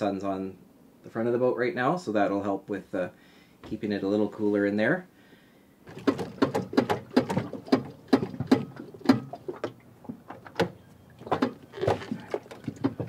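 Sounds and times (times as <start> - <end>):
metallic clicks and knocks: 5.9 - 13.0.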